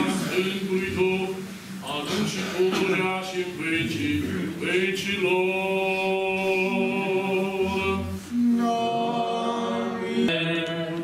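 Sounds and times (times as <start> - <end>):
voices chanting long notes: 5.6 - 11.0.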